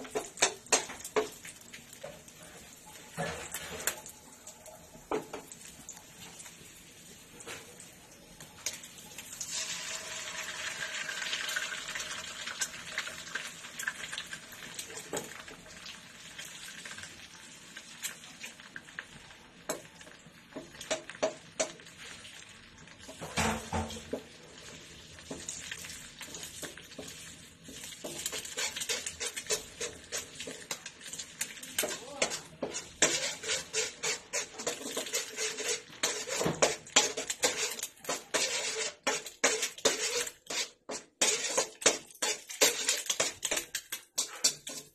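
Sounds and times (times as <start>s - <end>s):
egg sizzling in hot oil: 0.0s - 44.9s
metal turner scraping a wok: 2.0s - 4.1s, 9.4s - 15.5s, 23.0s - 44.9s.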